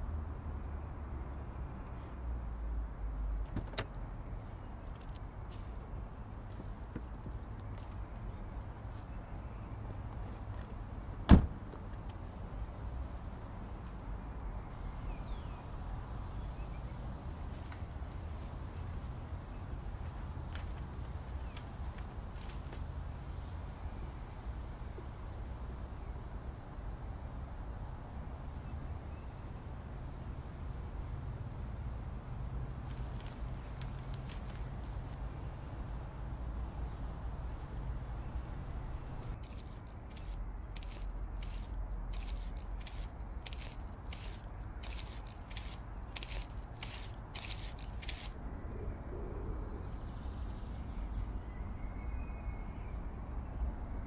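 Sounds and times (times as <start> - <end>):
footsteps crunching on dirt: 5.0 - 9.2, 32.9 - 35.2, 39.3 - 48.4
short clicks or rustles: 39.4 - 48.4.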